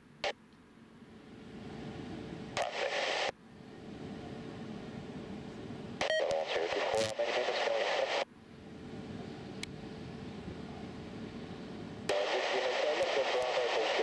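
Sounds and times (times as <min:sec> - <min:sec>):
low background noise: 0:00.0 - 0:14.0
radio static hiss: 0:02.5 - 0:03.4, 0:06.0 - 0:08.3, 0:12.0 - 0:14.0
radio click: 0:02.6 - 0:03.3, 0:06.0 - 0:08.3, 0:12.1 - 0:14.0
hissy radio transmission: 0:02.6 - 0:03.4, 0:06.0 - 0:08.3, 0:12.1 - 0:14.0.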